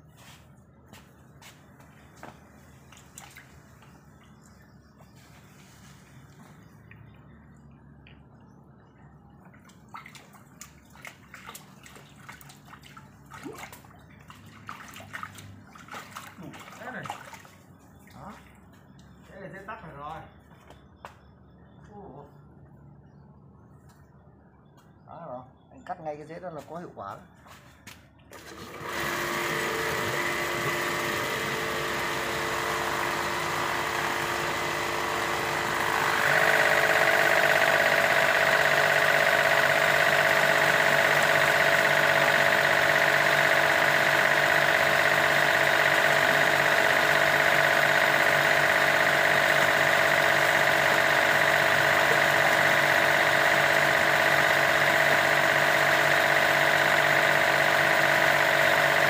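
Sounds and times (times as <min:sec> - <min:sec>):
pump motor running: 0:00.1 - 0:20.2, 0:28.3 - 0:59.0.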